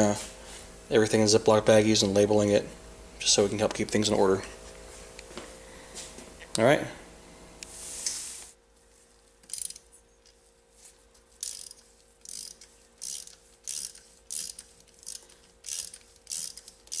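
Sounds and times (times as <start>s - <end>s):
ratchet wrench clicking: 9.5s - 9.9s, 11.4s - 17.0s.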